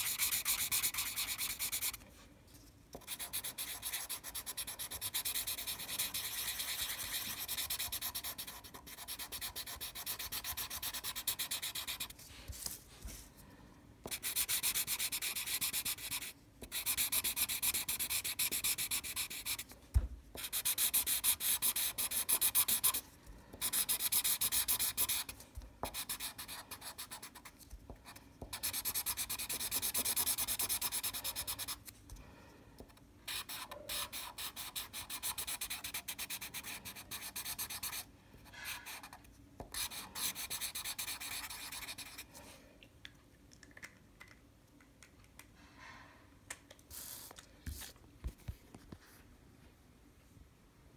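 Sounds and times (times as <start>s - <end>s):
marker scribbling on paper: 0.0s - 2.0s, 3.0s - 12.2s, 14.1s - 19.6s, 20.4s - 23.0s, 23.6s - 31.8s, 33.3s - 38.0s, 38.6s - 42.2s.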